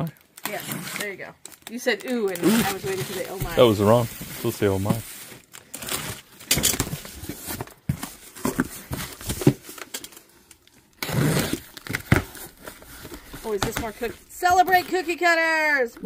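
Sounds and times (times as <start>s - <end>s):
cardboard box flaps rustling: 2.5s - 5.2s
box cutter slitting tape: 11.0s - 12.4s.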